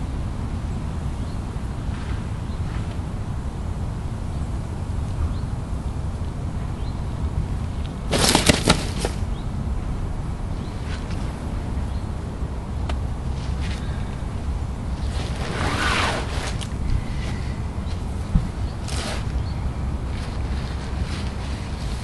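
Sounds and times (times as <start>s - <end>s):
wind rumble on microphone: 0.0s - 22.0s
fish flapping in a net: 8.1s - 9.2s.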